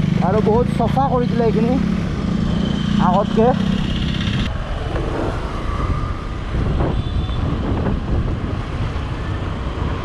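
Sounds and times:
motorcycle rumble: 0.0s - 10.0s
wind buffeting microphone: 4.4s - 10.0s.

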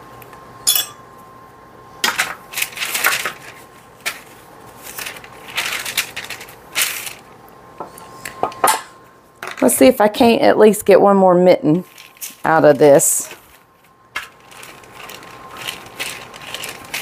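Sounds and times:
parchment paper crinkling: 2.5s - 7.3s, 11.8s - 17.0s.

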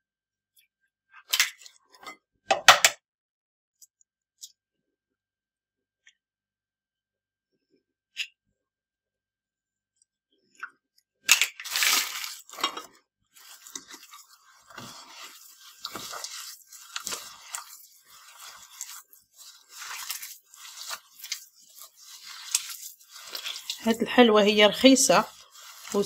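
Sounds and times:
hand squishing gritty sugar mixture: 11.2s - 26.0s.

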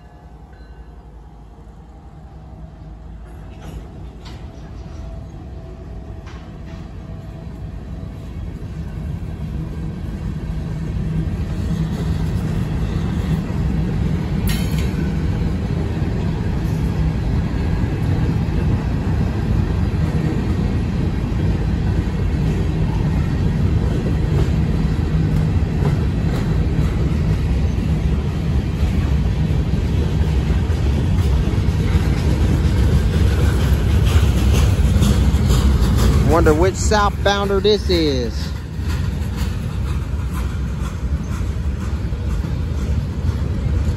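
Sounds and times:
freight train wheels rumbling: 0.0s - 43.9s.

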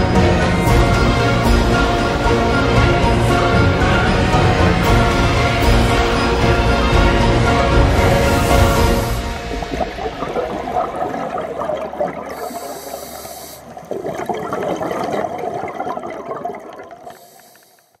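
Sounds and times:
underwater bubbling and gurgling: 7.0s - 18.0s.

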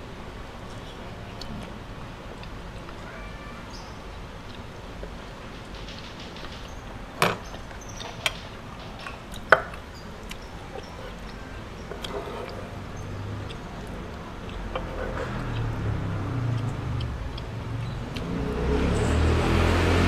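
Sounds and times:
person chewing: 9.2s - 18.4s.

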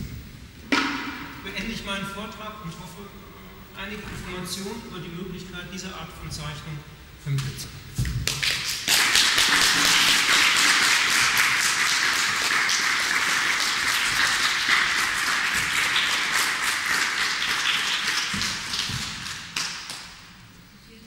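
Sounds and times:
audience applauding: 8.2s - 20.3s.

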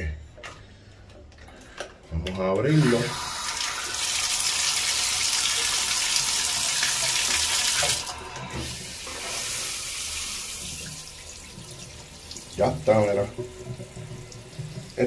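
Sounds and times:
quiet running water: 2.4s - 15.0s
water gushing from bathtub spout: 2.7s - 15.0s.

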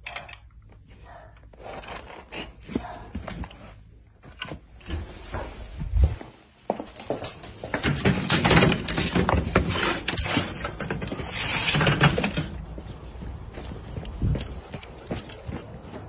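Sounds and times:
rustling handling noise: 0.7s - 15.9s
footsteps on paved path: 12.6s - 16.0s.

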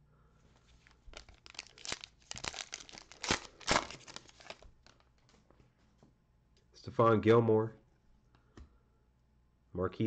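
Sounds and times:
foil wrapper tearing and crinkling: 0.8s - 5.1s.

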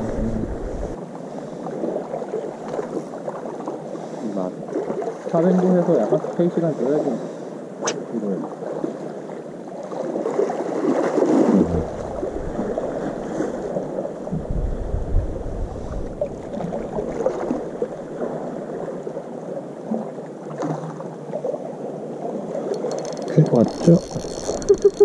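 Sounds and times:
low rumble on microphone: 0.0s - 1.0s, 11.5s - 17.8s
sea water lapping: 0.0s - 25.0s.

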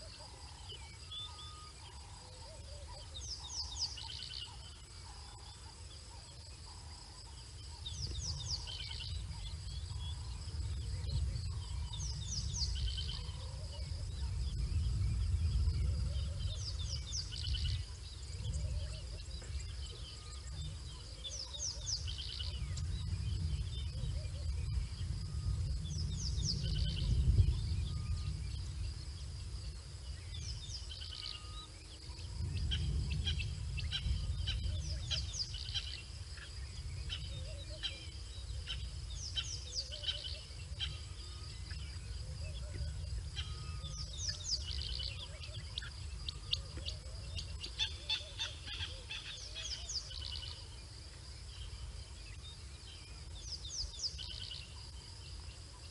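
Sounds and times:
bird chirping: 0.0s - 55.9s
insects droning: 0.0s - 55.9s
low rumble: 7.9s - 21.2s.

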